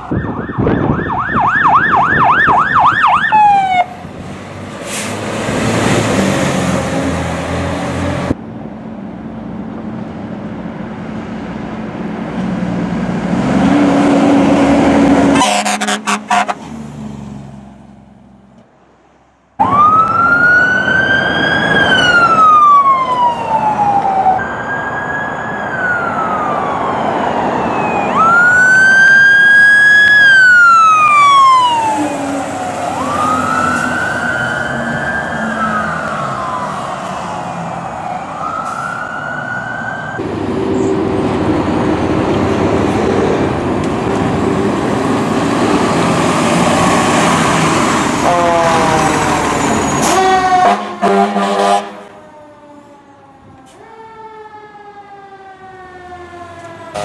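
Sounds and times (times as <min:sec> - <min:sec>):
emergency vehicle siren wailing: 0:00.0 - 0:04.3, 0:14.0 - 0:16.6, 0:19.6 - 0:57.0
heavy engine and road rumble: 0:00.0 - 0:57.0
horn blast: 0:15.2 - 0:16.7, 0:48.2 - 0:52.1.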